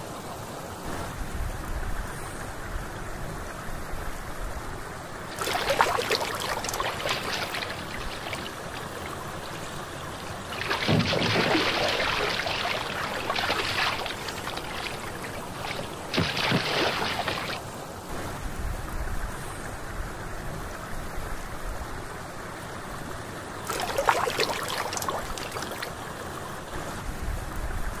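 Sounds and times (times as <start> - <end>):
water splashing and trickling: 5.1 - 18.1, 23.6 - 26.8.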